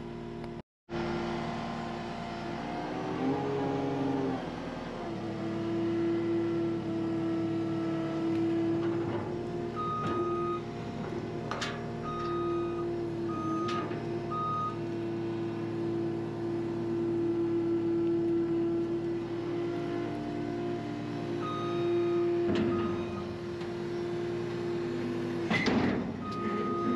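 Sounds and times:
diesel engine running: 0.0 - 26.9
short high alarm beeps: 21.4 - 22.2, 26.2 - 26.9.

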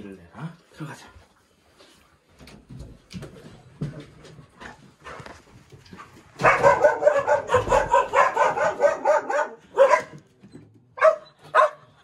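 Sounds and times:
dogs barking: 6.4 - 10.3, 11.0 - 12.0.

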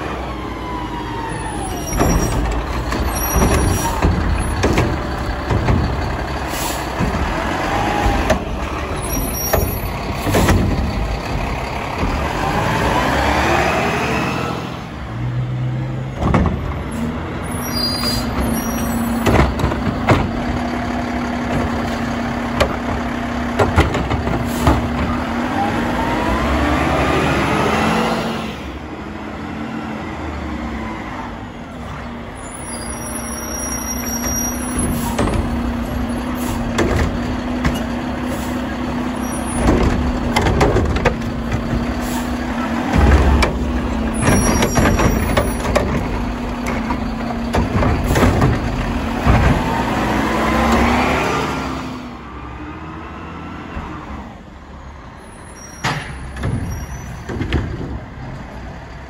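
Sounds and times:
garbage truck engine: 0.0 - 59.0
clunks: 1.6 - 12.8, 16.0 - 25.5, 31.8 - 50.9, 55.6 - 59.0.

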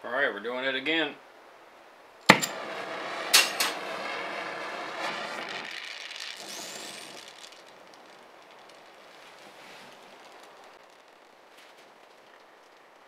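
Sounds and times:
gas torch pops: 2.2 - 12.8
gas torch hissing flame: 2.3 - 11.0.

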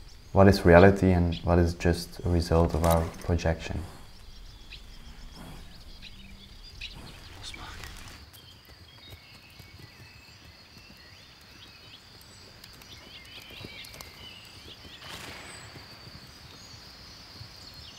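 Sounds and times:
rustling hiss: 0.0 - 8.7.

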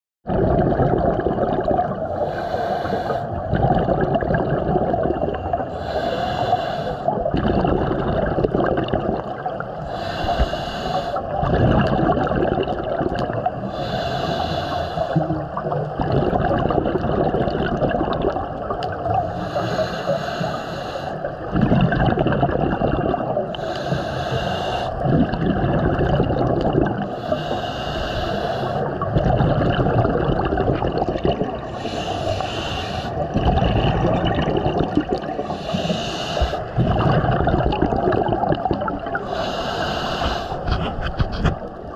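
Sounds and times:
exhaled air bubbling: 0.2 - 41.9
steady underwater rush: 0.2 - 41.9
regulator inhale hiss: 2.1 - 3.4, 5.7 - 7.1, 9.8 - 11.4, 13.6 - 15.3, 19.3 - 21.4, 23.5 - 25.0, 27.0 - 29.0, 31.6 - 33.3, 35.4 - 36.8, 39.2 - 40.8.

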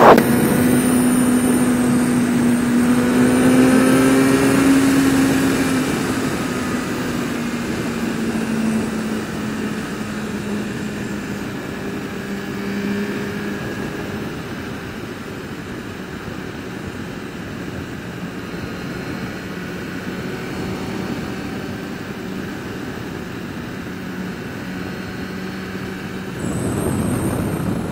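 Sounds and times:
wind noise: 0.0 - 12.2, 26.2 - 27.9
motorcycle engine running: 0.0 - 27.9
road noise: 0.0 - 27.9.

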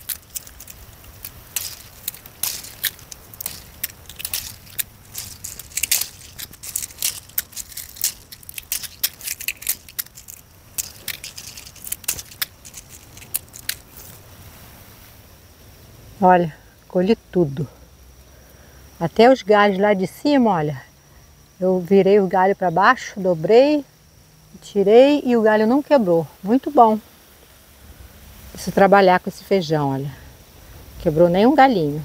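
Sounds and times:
dry pods crackling and snapping: 0.0 - 14.3.

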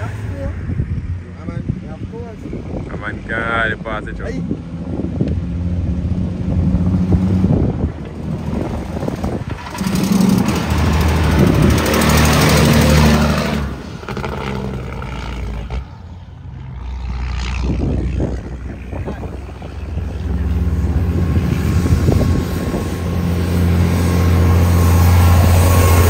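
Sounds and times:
truck diesel engine running: 6.1 - 16.2, 17.7 - 26.0.

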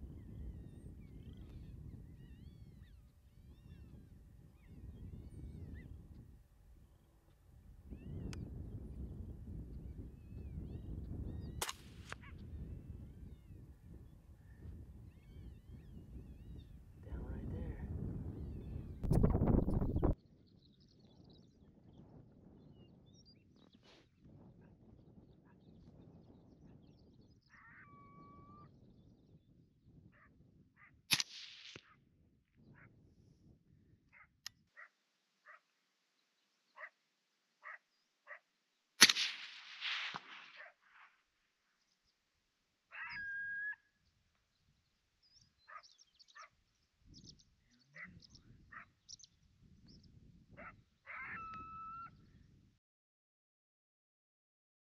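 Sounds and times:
rifle shot with echo: 11.6 - 12.2, 31.1 - 31.8, 39.0 - 40.7
coyote-like whining: 42.9 - 44.0, 50.6 - 52.2
short yips: 50.6 - 52.1.

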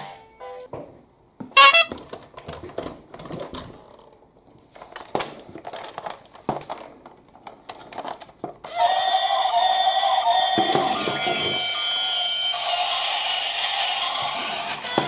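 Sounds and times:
plastic toy car clicks and rattles: 1.9 - 4.2, 4.8 - 9.1.

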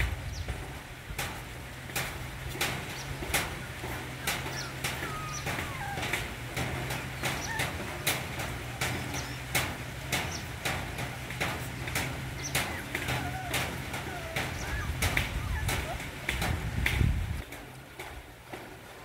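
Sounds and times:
puppies chewing clicks: 0.3 - 19.0
puppies chirping: 2.5 - 16.6.

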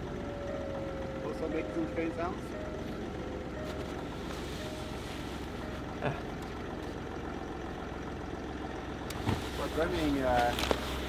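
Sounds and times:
diesel engine idling: 0.0 - 11.0.

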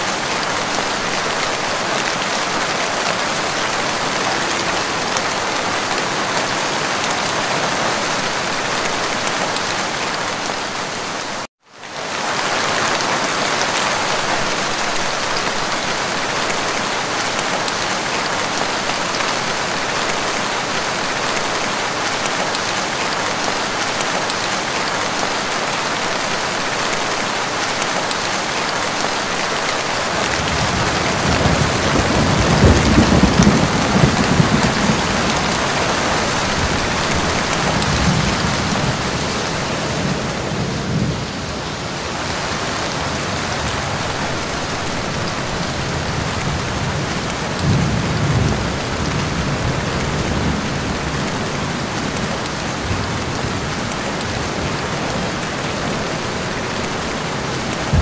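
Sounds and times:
rain falling on leaves: 0.0 - 58.0.

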